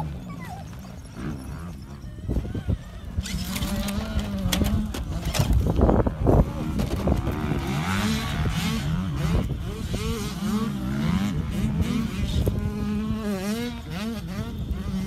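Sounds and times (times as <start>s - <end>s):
electric motor and gear whine: 0.0s - 15.0s.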